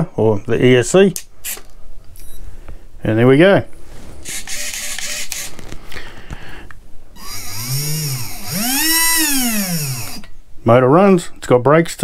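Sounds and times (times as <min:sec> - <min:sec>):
electric motor whine: 0:07.2 - 0:10.3.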